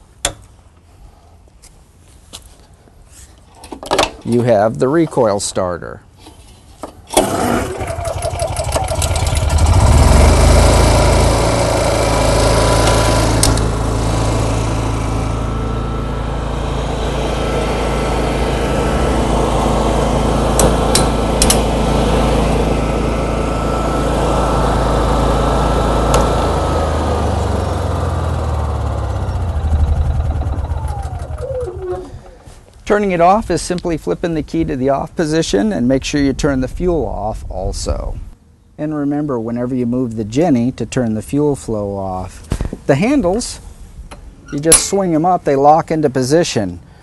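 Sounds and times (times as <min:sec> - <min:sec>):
generator recoil pull start: 0:07.1 - 0:14.5, 0:20.5 - 0:21.8, 0:26.0 - 0:32.5
generator running: 0:07.1 - 0:32.8
engine winding down whine: 0:07.2 - 0:32.5.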